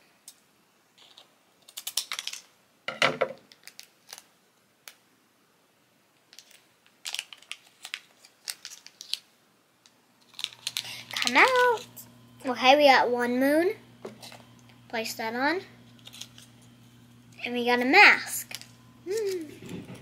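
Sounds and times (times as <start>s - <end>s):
scissors snipping foil: 1.0s - 2.4s, 10.2s - 11.8s, 15.9s - 16.7s, 18.5s - 19.8s
foil packet crinkling: 1.0s - 2.5s, 3.5s - 4.3s, 6.3s - 9.3s, 10.2s - 12.3s, 14.0s - 14.9s, 15.8s - 17.6s, 18.2s - 20.0s.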